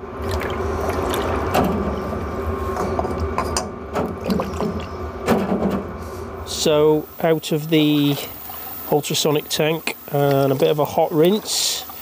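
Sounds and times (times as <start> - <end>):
liquid sloshing: 0.2 - 2.2, 4.0 - 5.5, 7.8 - 12.0
metal knocks against tank: 2.8 - 5.9
ultrasonic cleaner buzzing hiss: 6.0 - 12.0.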